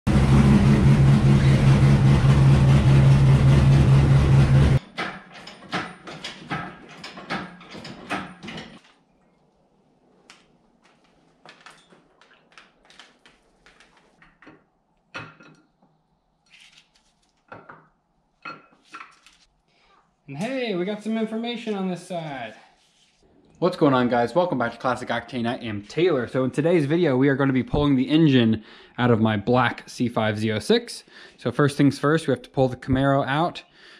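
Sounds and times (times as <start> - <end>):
car engine running loudly: 0.1 - 4.8
metallic clanks of tools: 4.8 - 8.8.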